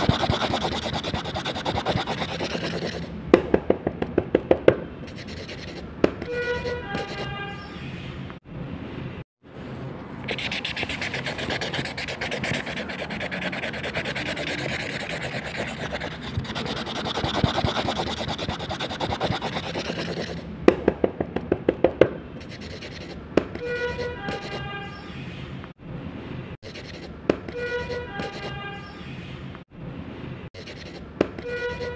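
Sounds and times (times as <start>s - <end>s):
brush pen scrubbing on paper: 0.0s - 3.1s, 5.1s - 5.8s, 10.2s - 20.4s, 22.4s - 23.2s, 26.6s - 27.1s, 30.6s - 31.0s
sharp pen strokes: 0.0s - 3.1s, 5.0s - 5.9s, 10.2s - 20.4s, 22.4s - 23.2s, 26.6s - 28.5s, 30.6s - 31.9s.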